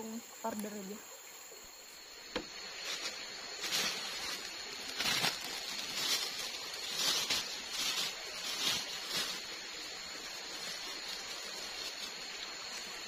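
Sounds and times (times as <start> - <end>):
high insect whine: 0.0 - 13.0
footsteps crunching on dry leaves: 2.6 - 13.0.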